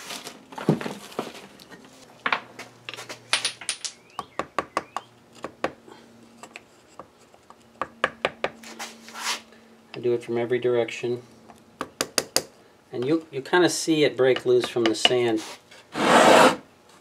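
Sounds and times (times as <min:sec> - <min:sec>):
tools knocking and shuffling: 0:00.0 - 0:05.8, 0:14.2 - 0:15.9
wooden stick tapping a screw: 0:14.3 - 0:15.3.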